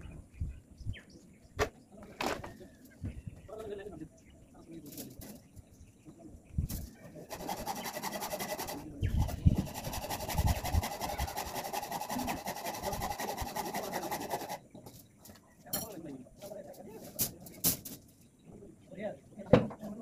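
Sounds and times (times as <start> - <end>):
rasping on steel gate: 7.2 - 14.6.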